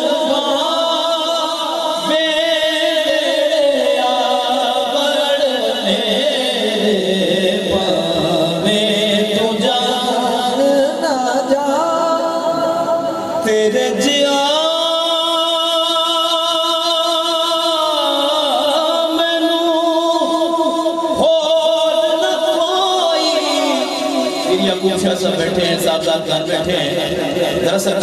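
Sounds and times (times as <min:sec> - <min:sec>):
man singing slow ornamented melody: 0:00.0 - 0:28.0.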